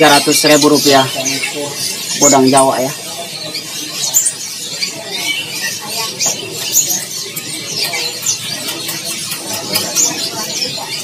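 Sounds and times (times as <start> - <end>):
songbirds chirping and whistling: 0.0 - 11.0.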